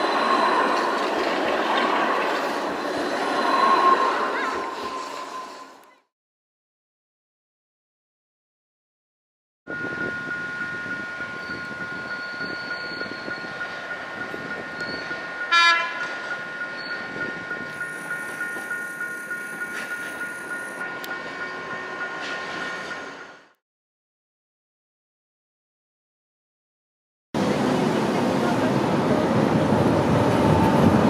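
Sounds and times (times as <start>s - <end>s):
train wheels rumbling on rails: 0.0s - 5.6s, 9.7s - 23.5s, 27.4s - 31.0s
crossing signal pulsing tone: 0.0s - 5.9s, 9.7s - 23.5s
train horn blast: 15.5s - 16.1s.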